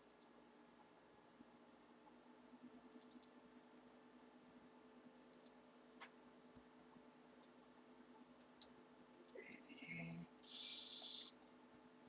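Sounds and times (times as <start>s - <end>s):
soft clicks: 0.0s - 0.4s, 2.7s - 3.4s, 5.3s - 7.6s, 8.4s - 9.4s
faint room hum: 0.0s - 12.0s.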